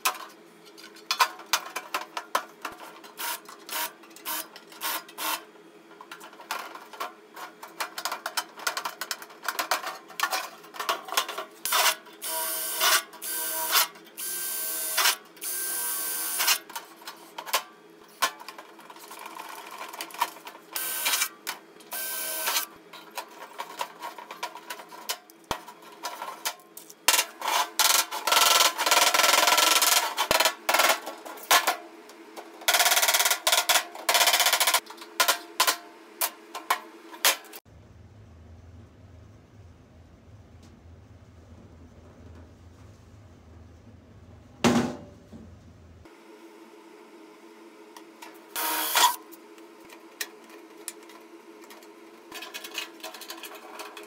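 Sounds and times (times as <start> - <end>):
cordless drill on sheet metal: 21.9 - 22.6, 48.6 - 49.2.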